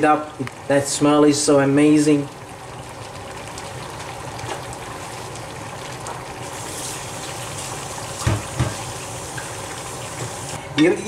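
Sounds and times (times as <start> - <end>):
curry bubbling in a pan: 0.4 - 10.6.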